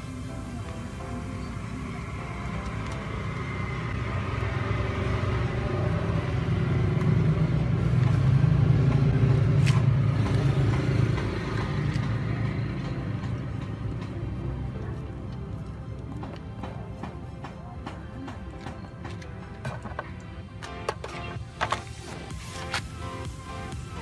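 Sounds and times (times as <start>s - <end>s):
vehicle engine passing: 1.1s - 15.8s.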